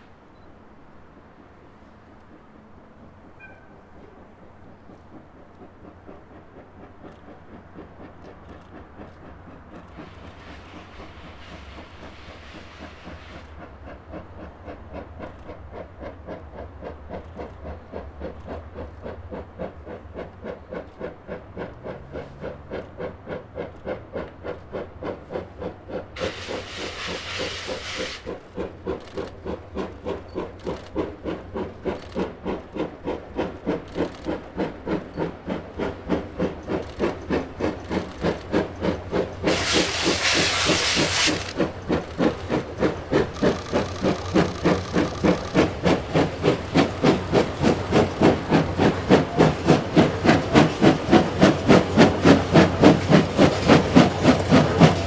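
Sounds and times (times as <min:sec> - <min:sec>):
steam locomotive chuffing: 0:00.0 - 0:55.0
loud hiss of steam: 0:10.0 - 0:13.5, 0:26.2 - 0:28.7, 0:38.8 - 0:42.6.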